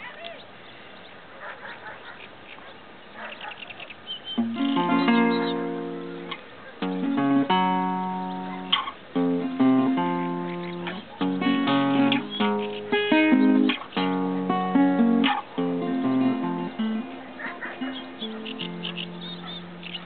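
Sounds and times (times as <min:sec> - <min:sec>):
classical guitar fingerstyle: 0:04.3 - 0:20.0.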